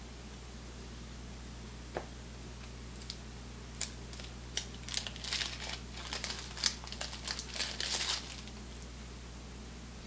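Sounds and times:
paper wrapper tearing and crinkling: 0:03.8 - 0:08.6.

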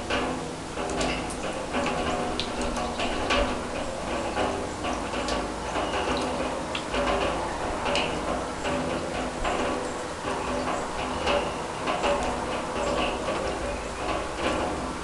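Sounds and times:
rain dripping on steel drum: 0:00.0 - 0:15.0
rain patter: 0:00.0 - 0:15.0.

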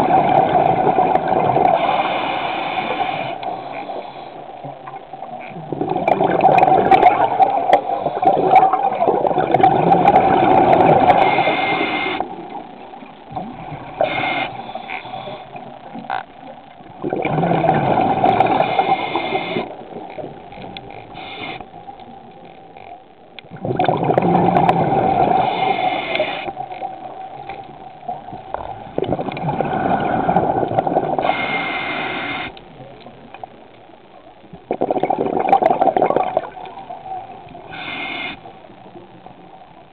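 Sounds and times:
diver's breath bubbling underwater: 0:23.5 - 0:26.5, 0:28.9 - 0:32.5.

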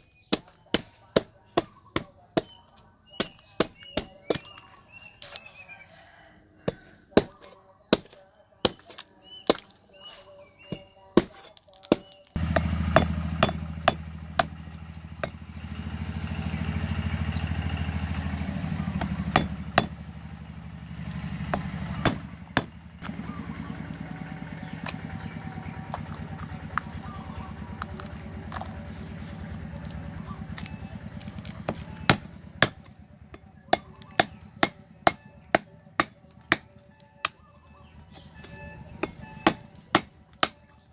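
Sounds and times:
cleaver chopping coconut husk: 0:00.0 - 0:40.9
steady engine hum: 0:11.9 - 0:40.9.

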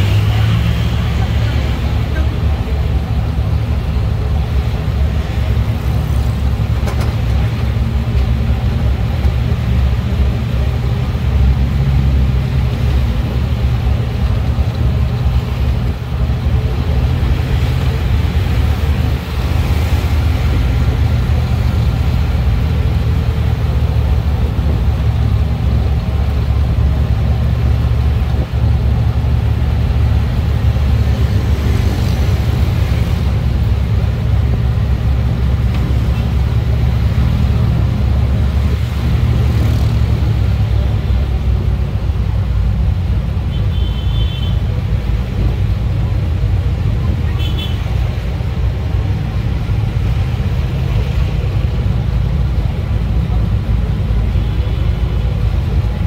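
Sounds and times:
vehicle engine and road rumble: 0:00.0 - 0:56.0.

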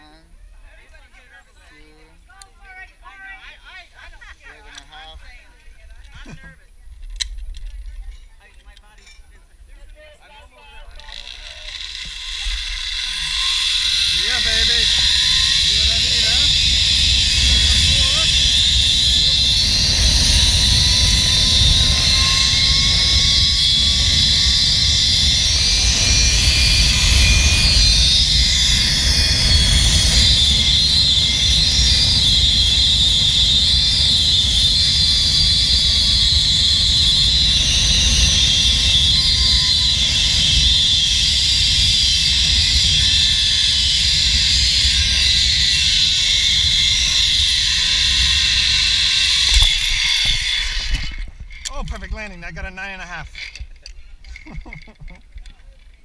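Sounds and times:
zipline pulleys whirring on cable: 0:10.8 - 0:52.0, 0:52.8 - 0:56.0
wind rumbling on microphone: 0:12.1 - 0:56.0.

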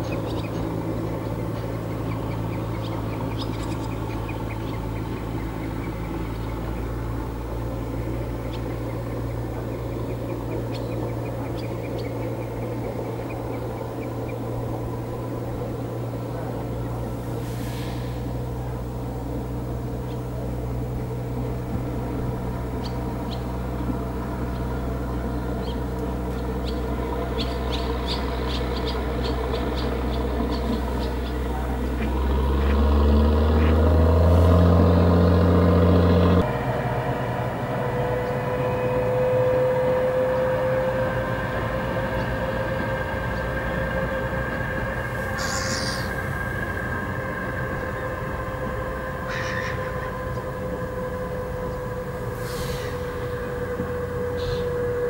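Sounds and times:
small birds chirping: 0:00.0 - 0:17.2, 0:19.9 - 0:21.6, 0:22.5 - 0:33.8, 0:45.4 - 0:46.2
low engine drone: 0:00.0 - 0:55.0.

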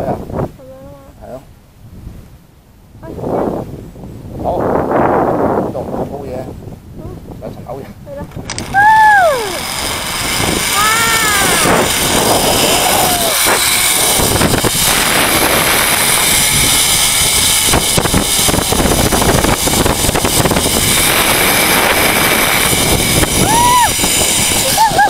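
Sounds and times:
wind on microphone: 0:00.0 - 0:25.0
zip-line pulleys whirring on cable: 0:08.2 - 0:25.0.

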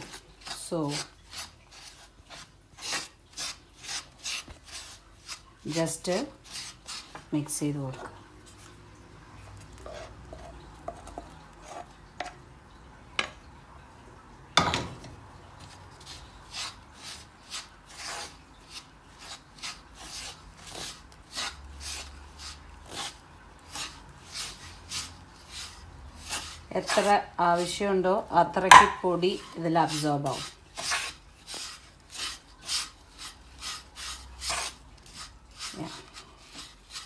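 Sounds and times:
wooden spatula scraping pan: 0:00.0 - 0:08.8, 0:09.4 - 0:12.4, 0:14.6 - 0:37.0
spatula knock: 0:14.6 - 0:15.1, 0:28.6 - 0:29.1.

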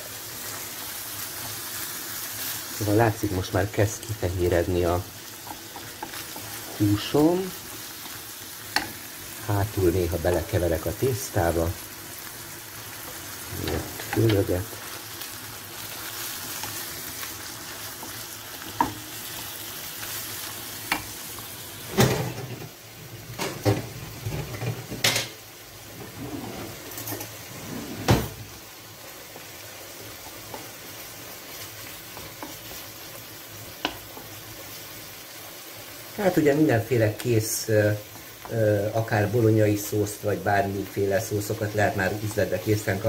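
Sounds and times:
meat and onion sizzling in pan: 0:00.0 - 0:43.0
wooden spoon stirring: 0:05.4 - 0:11.3.

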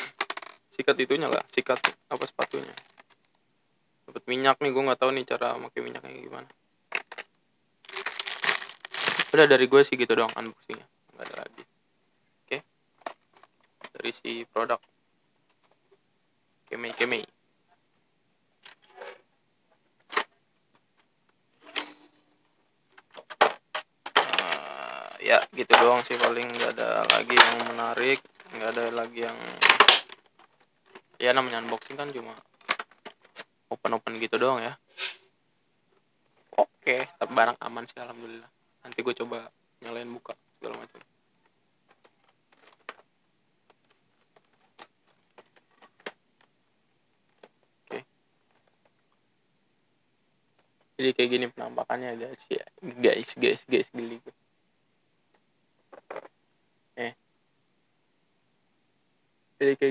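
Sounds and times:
plastic clicks and packaging rustles: 0:00.0 - 0:00.6, 0:01.2 - 0:03.4, 0:06.4 - 0:09.6, 0:10.2 - 0:11.7, 0:13.0 - 0:14.0, 0:22.9 - 0:33.5, 0:40.2 - 0:49.2, 0:55.3 - 0:56.4
cardboard and paper rustling: 0:01.2 - 0:03.2, 0:07.9 - 0:09.5, 0:25.6 - 0:33.5, 0:41.9 - 0:43.1.

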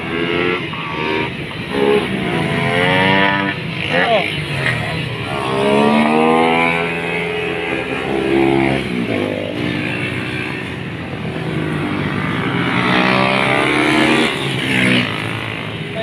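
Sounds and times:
small motorcycles revving: 0:00.0 - 0:16.0.

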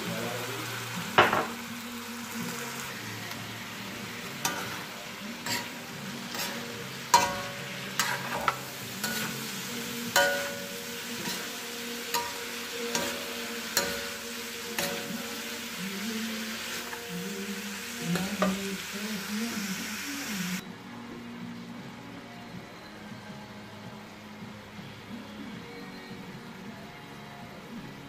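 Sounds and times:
wok sizzling: 0:00.0 - 0:20.6
metal spatula scraping and knocking wok: 0:04.3 - 0:15.4.

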